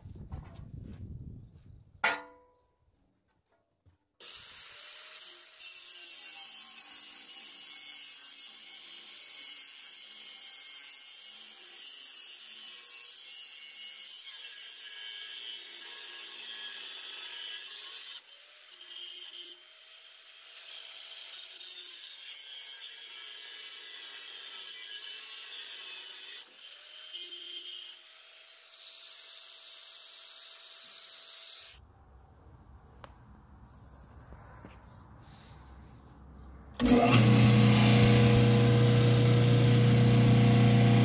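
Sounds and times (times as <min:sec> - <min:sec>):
ringing metal clang: 0:02.0 - 0:02.6
power tool grinding steel: 0:04.2 - 0:31.8, 0:36.8 - 0:41.0.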